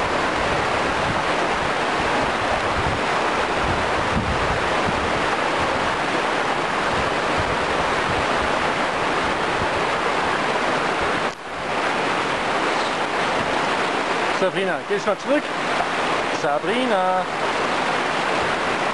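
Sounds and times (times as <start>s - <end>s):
wind buffeting microphone: 0.0s - 16.4s
rushing river water: 0.0s - 18.9s.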